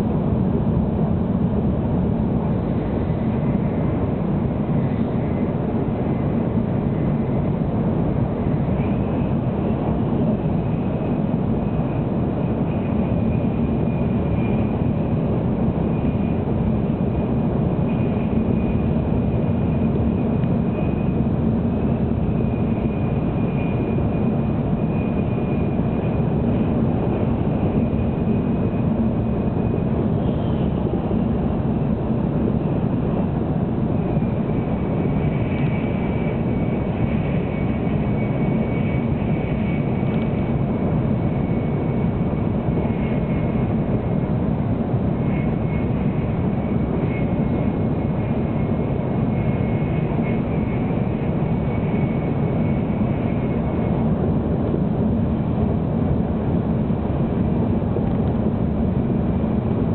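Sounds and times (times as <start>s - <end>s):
faint high whine: 0.0s - 59.9s
train cabin low rumble: 0.0s - 59.9s.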